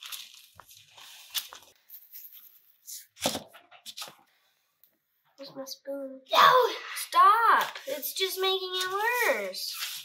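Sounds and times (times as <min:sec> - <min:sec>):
parchment paper rustling: 0:00.0 - 0:04.3, 0:07.2 - 0:10.0.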